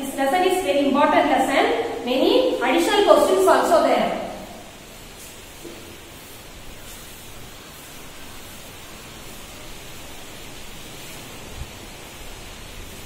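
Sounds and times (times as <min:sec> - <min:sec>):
room noise hiss: 0:00.0 - 0:13.0
duster rubbing on blackboard: 0:04.8 - 0:13.0.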